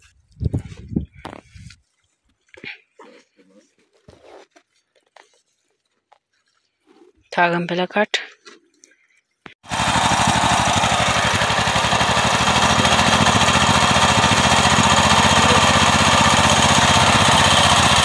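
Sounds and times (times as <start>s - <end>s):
power tiller engine running: 9.6s - 18.0s.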